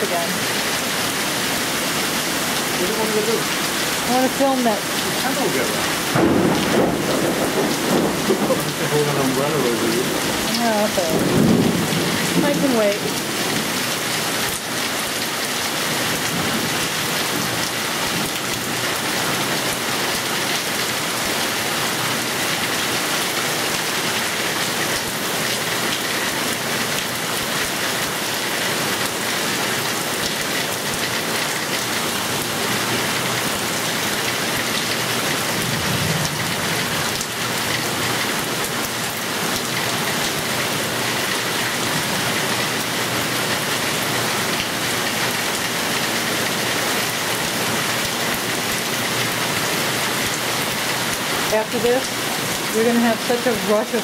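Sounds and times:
heavy rain on foliage: 0.0s - 54.0s.

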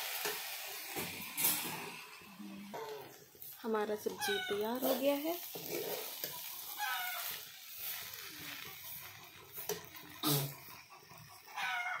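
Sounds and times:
vegetables sizzling: 0.0s - 12.0s
metal spatula stirring: 2.7s - 12.0s
domestic animal calling: 6.8s - 7.3s.

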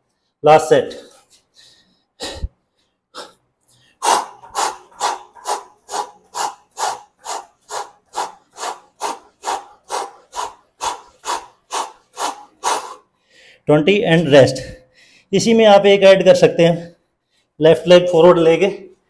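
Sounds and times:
rubbing strokes on exercise mat: 4.0s - 13.0s.

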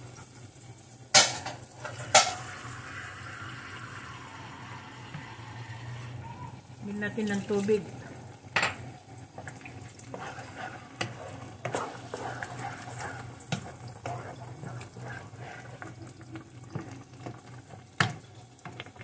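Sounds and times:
spoon stirring thick sauce: 9.3s - 19.0s.

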